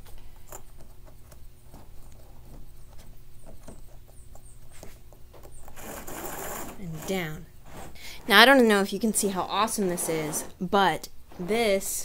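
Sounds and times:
low steady hum: 0:00.0 - 0:12.0
cord rubbing through plastic pulley: 0:05.6 - 0:08.7, 0:09.6 - 0:10.6.

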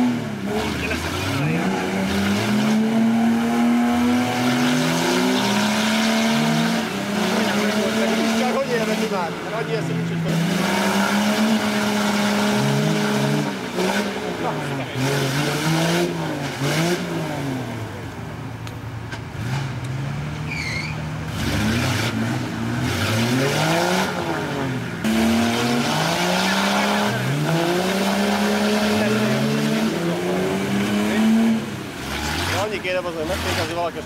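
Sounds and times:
off-road engines revving: 0:00.0 - 0:34.0.

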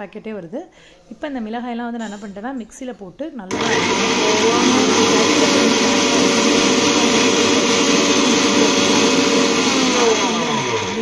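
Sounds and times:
mixer grinder motor whine: 0:03.5 - 0:11.0.

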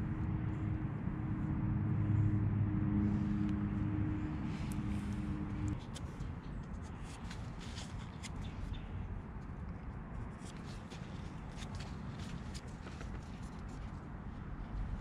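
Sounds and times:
steady hum: 0:00.0 - 0:05.8
small clicks and scrapes: 0:09.6 - 0:14.0.

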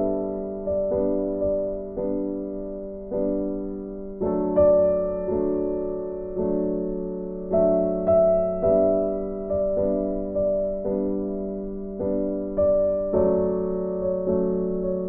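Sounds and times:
soft piano chords: 0:00.0 - 0:15.0.

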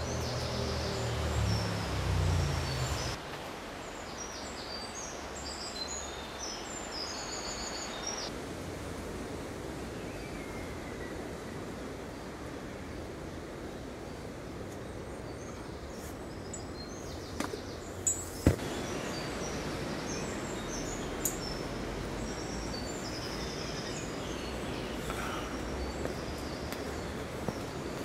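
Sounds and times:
small birds chirping: 0:00.0 - 0:03.2, 0:03.8 - 0:08.3, 0:14.7 - 0:28.0.

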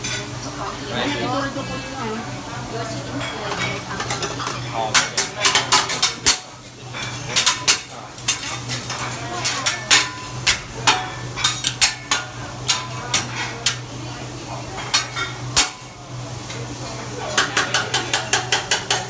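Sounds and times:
metal spatulas clacking on griddle: 0:03.5 - 0:13.9, 0:14.8 - 0:15.9, 0:17.3 - 0:19.0.

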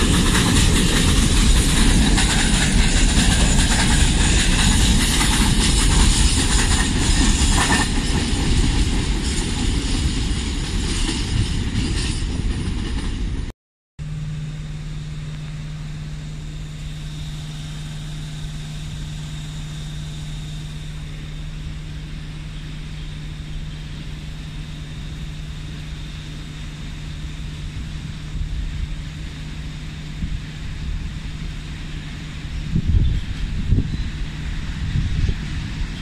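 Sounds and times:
locomotive low hum: 0:00.0 - 0:36.0
loud train running: 0:00.0 - 0:36.0
faint high whine: 0:14.0 - 0:36.0.

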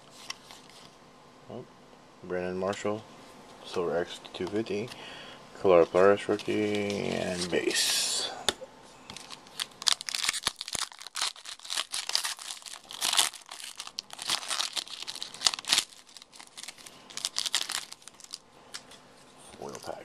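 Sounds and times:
foil wrapper crinkling and tearing: 0:09.1 - 0:18.9.

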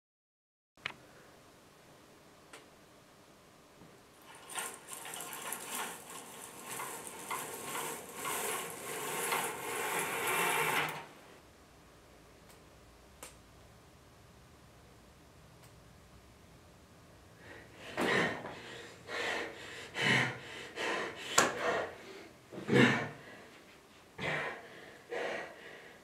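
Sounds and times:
curtains swishing along rail: 0:04.2 - 0:11.2.

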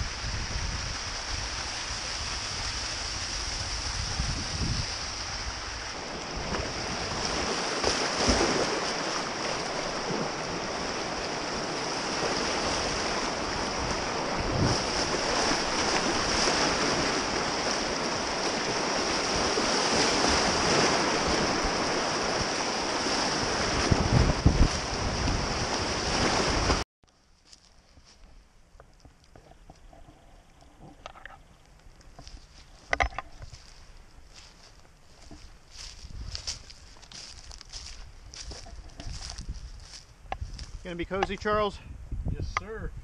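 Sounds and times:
creek water rushing: 0:00.0 - 0:26.8
wind: 0:00.0 - 0:43.0.

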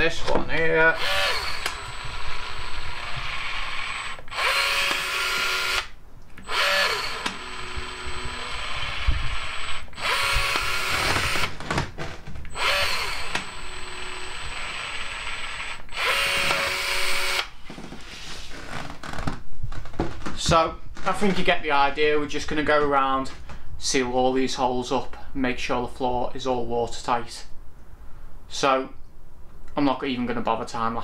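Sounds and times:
caulk gun motor whirring: 0:00.9 - 0:11.5, 0:12.5 - 0:17.5.

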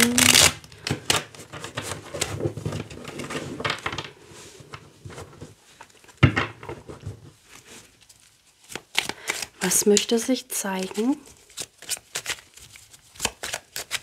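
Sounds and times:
cards shuffled by hand: 0:08.0 - 0:10.2, 0:10.8 - 0:14.0.

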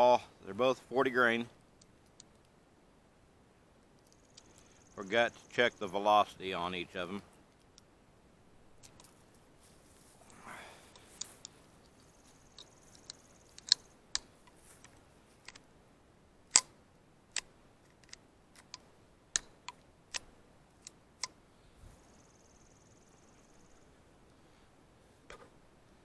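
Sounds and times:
sharp metallic rifle clicks: 0:12.5 - 0:14.5, 0:16.5 - 0:21.4.

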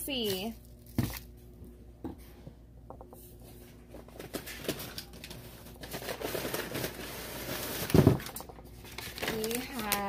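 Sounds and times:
plastic and cardboard rustling: 0:03.4 - 0:10.0
small clicks and crackles: 0:08.3 - 0:10.0.

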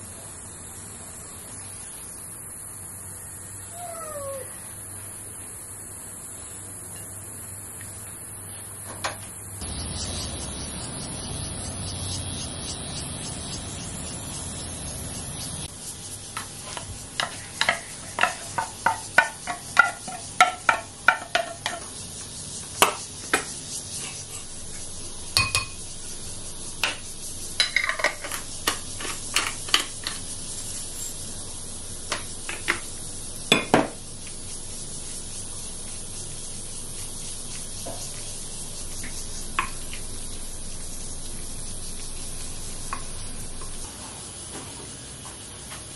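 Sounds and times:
wooden spoon knocking glass bowl: 0:25.4 - 0:25.8.

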